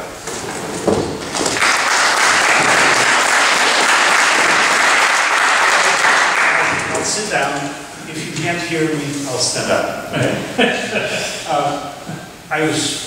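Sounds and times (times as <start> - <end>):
audience applauding: 1.2 - 7.6.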